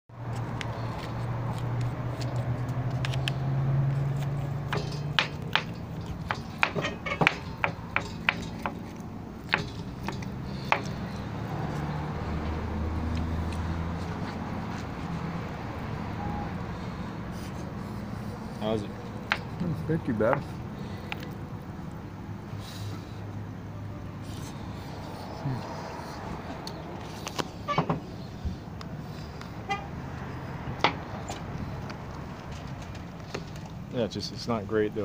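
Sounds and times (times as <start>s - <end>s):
vehicle engine humming: 0.1s - 35.0s.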